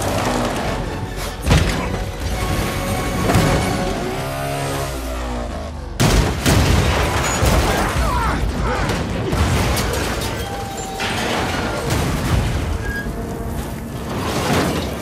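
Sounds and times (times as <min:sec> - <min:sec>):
metal grinding and screeching: 0:00.0 - 0:06.0, 0:09.8 - 0:15.0
crashing impacts: 0:06.0 - 0:15.0.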